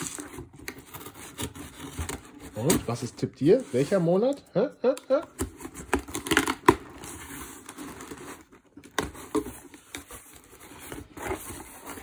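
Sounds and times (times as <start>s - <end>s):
cardboard tearing and rustling: 0.0s - 4.1s, 5.4s - 12.0s
packing tape slit and torn: 5.4s - 7.0s.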